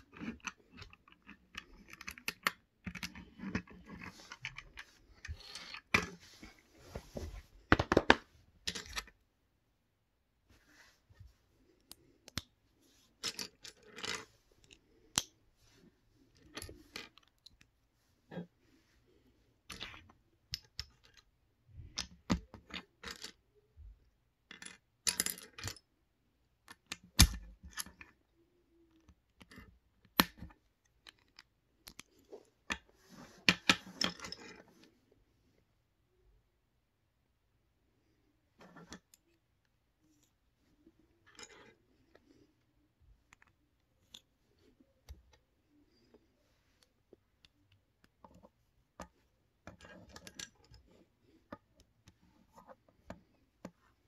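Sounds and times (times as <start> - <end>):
plastic bricks clicking and clattering: 0.0 - 6.1.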